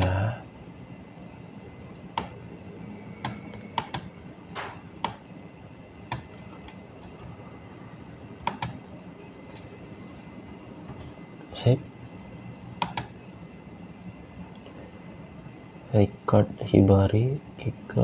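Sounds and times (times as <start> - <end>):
computer mouse clicks: 2.2 - 2.4, 3.2 - 4.1, 5.0 - 5.2, 6.1 - 7.3, 8.4 - 8.8, 12.8 - 13.1.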